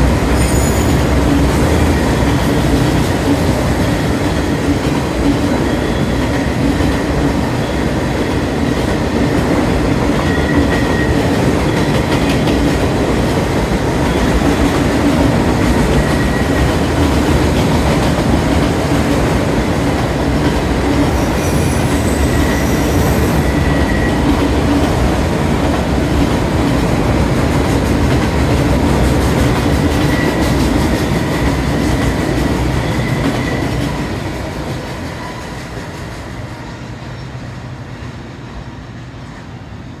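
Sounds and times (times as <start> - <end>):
train wheels rumbling on track: 0.0 - 40.0
high wheel squeals: 0.4 - 1.2, 21.2 - 24.3.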